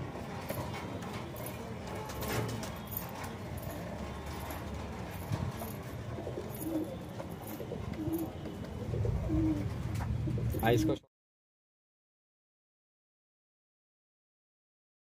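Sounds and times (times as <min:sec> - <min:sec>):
pigeon cooing: 0:05.5 - 0:11.0.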